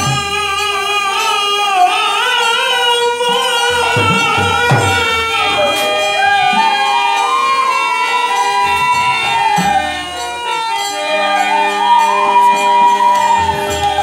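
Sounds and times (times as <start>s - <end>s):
bamboo flute melody: 2.7s - 14.0s
drum strokes: 3.2s - 7.0s.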